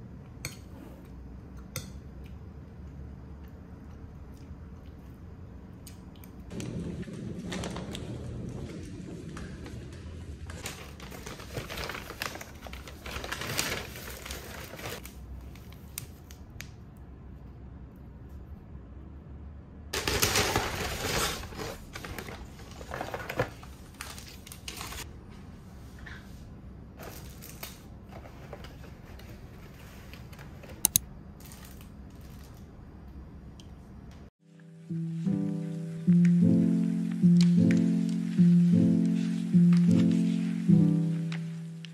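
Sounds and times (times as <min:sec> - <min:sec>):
paper bag rustling and crinkling: 0:06.6 - 0:16.0, 0:20.0 - 0:25.1, 0:27.0 - 0:30.8, 0:36.8 - 0:41.9.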